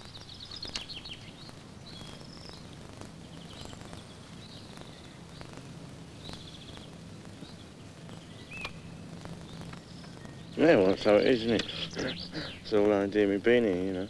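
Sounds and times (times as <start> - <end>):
bird chirps and trills: 0.0 - 14.0
steady low hum: 0.0 - 14.0.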